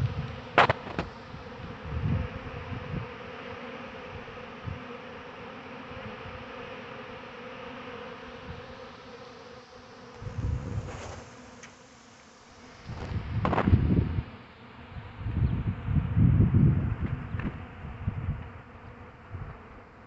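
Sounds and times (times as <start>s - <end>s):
microphone rumbles: 0.0s - 3.1s, 10.2s - 11.2s, 12.9s - 14.3s, 14.9s - 18.6s
honeybees buzzing: 0.0s - 20.0s.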